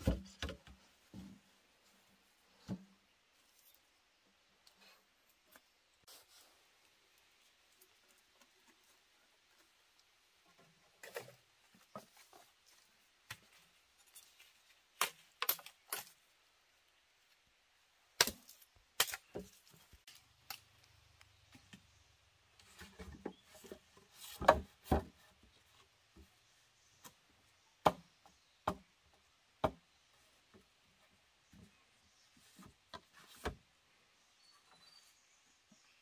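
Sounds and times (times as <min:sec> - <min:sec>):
wood chopping knocks: 0:27.8 - 0:28.0.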